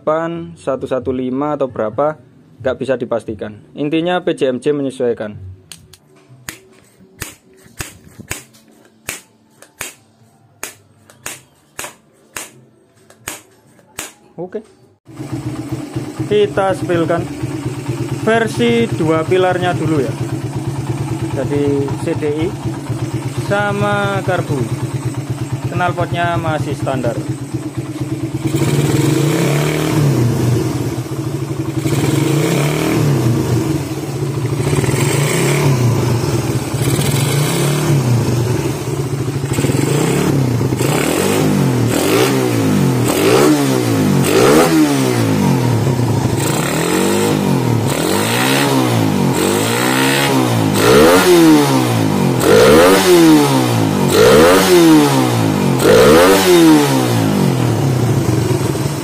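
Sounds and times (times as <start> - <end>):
motorcycle engine idling: 15.1 - 43.2, 43.8 - 51.2, 57.2 - 59.0
motorcycle engine revving: 15.1 - 59.0.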